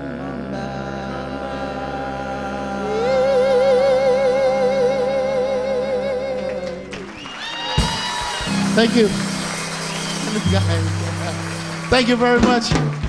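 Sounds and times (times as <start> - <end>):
vocal group close harmony chord: 0.0 - 7.1.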